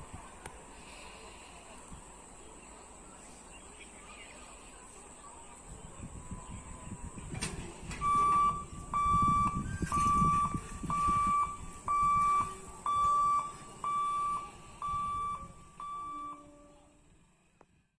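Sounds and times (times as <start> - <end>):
warning buzzer beeping: 8.0 - 16.9.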